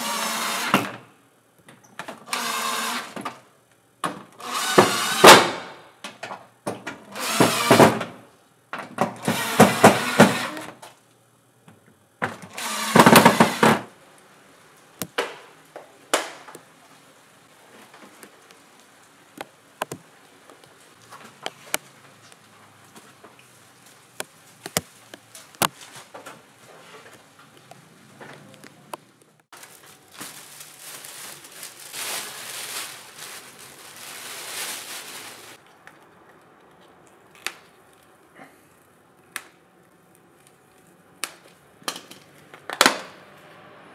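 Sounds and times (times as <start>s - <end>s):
impact driver driving screws: 4.4s - 5.6s, 7.2s - 8.0s, 9.2s - 10.7s, 12.4s - 13.8s.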